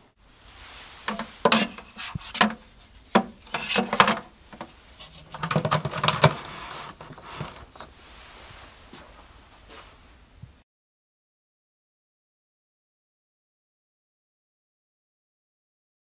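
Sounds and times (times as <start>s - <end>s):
plastic lid scraping and clattering: 1.1s - 7.9s.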